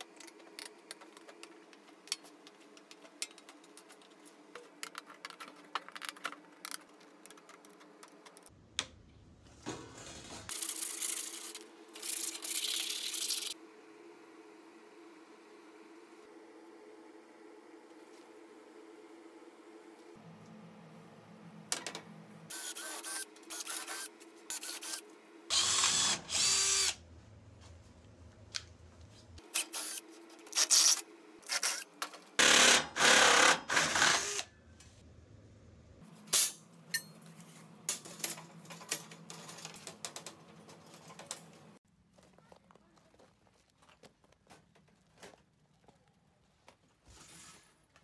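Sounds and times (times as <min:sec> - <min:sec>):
power drill boring metal: 0:24.8 - 0:27.0, 0:32.4 - 0:34.5.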